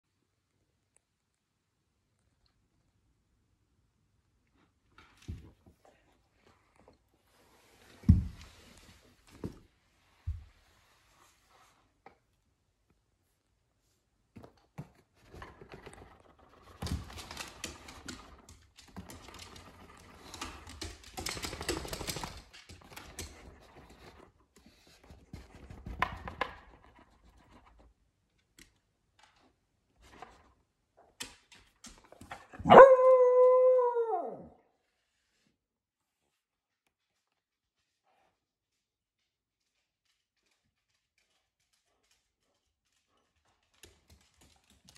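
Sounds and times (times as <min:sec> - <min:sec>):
small dog howling: 0:32.6 - 0:34.6.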